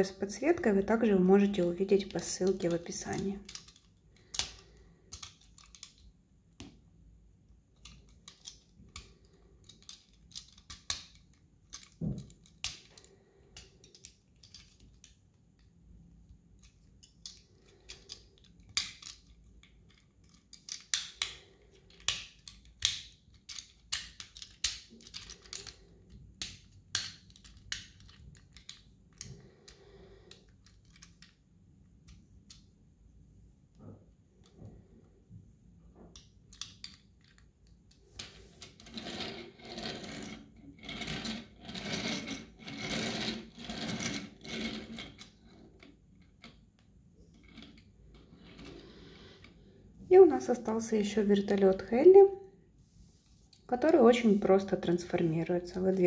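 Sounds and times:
small plastic clicks and snaps: 3.4s - 6.8s, 16.6s - 29.4s.

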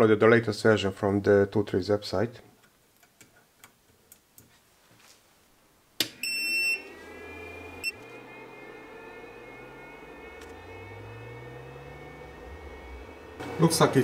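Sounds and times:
cooling fans whining: 6.1s - 14.0s
printer buzzer beeps: 6.2s - 13.4s.

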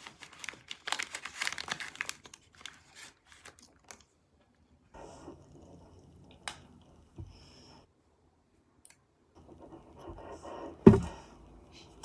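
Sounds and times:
rustling and scratching on paper: 0.0s - 4.0s.

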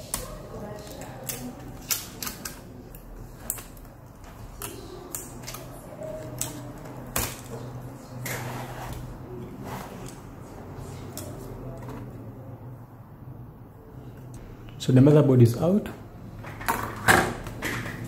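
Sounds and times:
laptop parts clicking and tapping: 0.0s - 7.6s.

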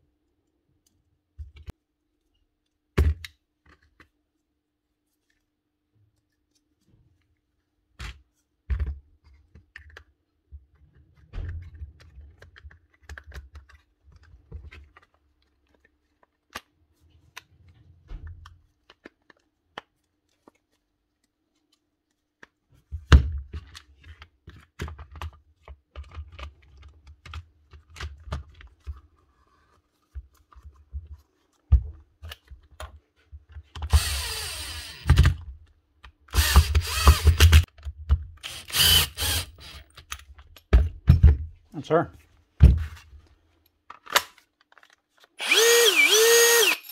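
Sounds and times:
drill parts clicking and knocking: 33.8s - 35.4s, 36.3s - 40.4s, 45.4s - 46.9s
power tool motor bursts: 33.9s - 35.2s, 36.4s - 37.6s, 38.4s - 39.8s, 45.4s - 46.9s.

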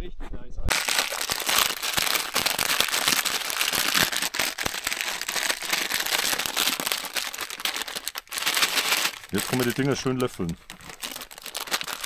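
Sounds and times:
plastic wrapper crinkling: 0.7s - 12.0s.

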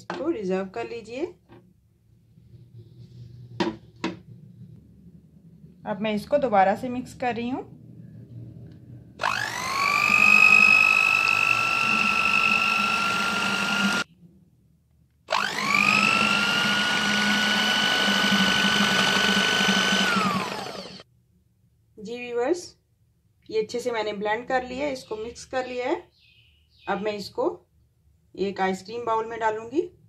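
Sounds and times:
electric hand mixer whine: 9.2s - 14.1s, 15.3s - 21.0s.

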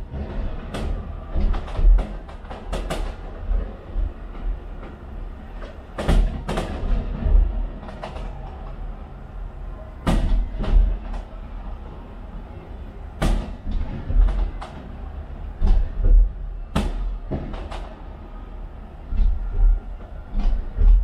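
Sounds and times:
low rumble: 0.0s - 21.0s.

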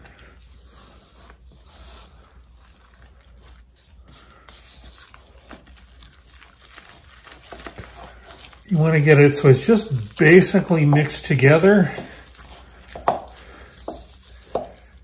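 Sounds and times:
spatula scraping dough in bowl: 0.0s - 15.0s.

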